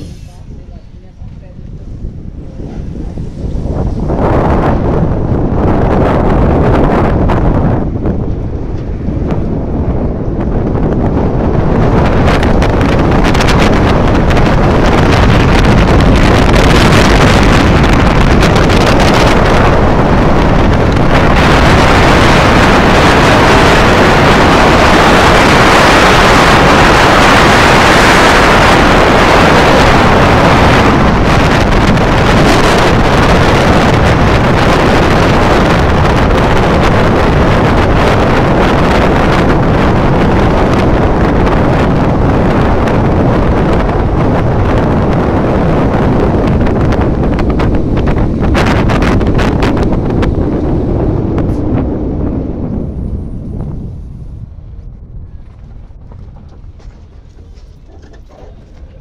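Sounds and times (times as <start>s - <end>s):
car road and engine noise: 0.0s - 59.0s
wind buffeting microphone: 0.0s - 59.0s.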